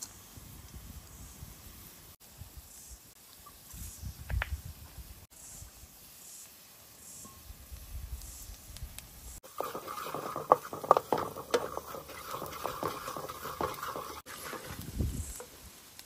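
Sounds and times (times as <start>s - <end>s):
kitchen taps clicks and scrapes: 9.5s - 14.8s.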